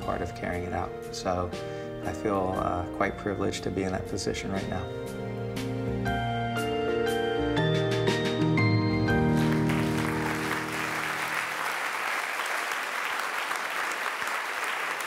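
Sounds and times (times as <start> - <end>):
closing music with held notes: 0.0 - 11.6
audience applauding: 9.3 - 15.0.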